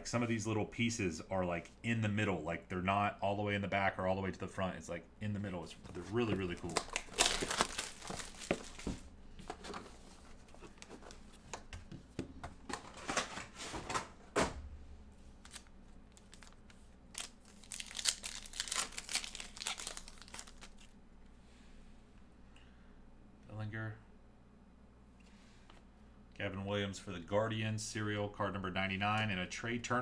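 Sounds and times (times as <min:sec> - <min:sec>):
foil wrapper crinkling and tearing: 0:06.3 - 0:09.0, 0:15.4 - 0:20.9.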